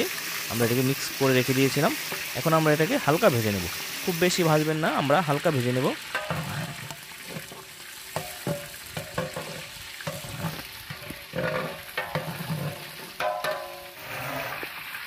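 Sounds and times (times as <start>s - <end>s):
chicken sizzling in oil: 0.0s - 15.0s
metal ladle scraping pot: 2.0s - 2.4s, 6.0s - 14.8s.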